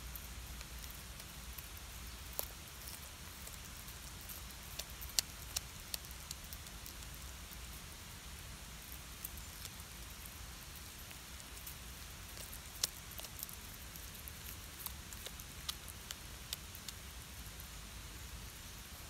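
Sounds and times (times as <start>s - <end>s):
cat crunching fish bones: 11.5s - 17.0s.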